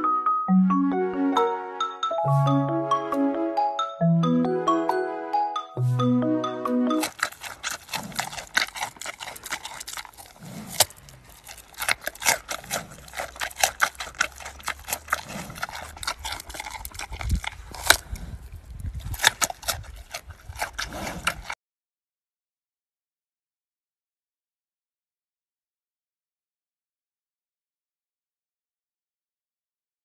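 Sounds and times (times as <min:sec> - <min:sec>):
mallet percussion music: 0:00.0 - 0:07.0
panda chewing crunchily: 0:05.8 - 0:21.6.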